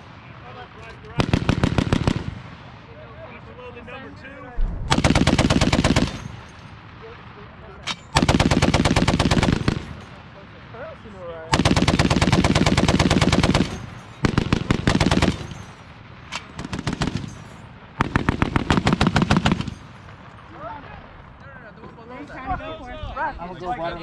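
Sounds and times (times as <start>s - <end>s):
heavy machine gun bursts: 4.9s - 6.5s, 8.0s - 10.1s, 11.5s - 15.8s, 16.4s - 20.0s.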